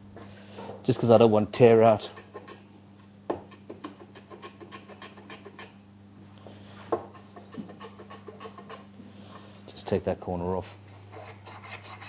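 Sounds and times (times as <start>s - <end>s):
block plane scratching wood: 11.1s - 12.0s.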